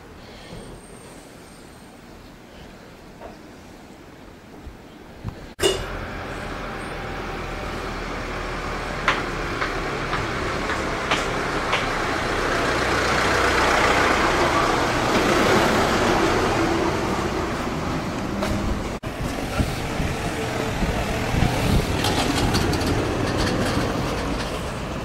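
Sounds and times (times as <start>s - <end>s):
street traffic noise: 0.0s - 25.0s
cars passing close by: 5.8s - 25.0s.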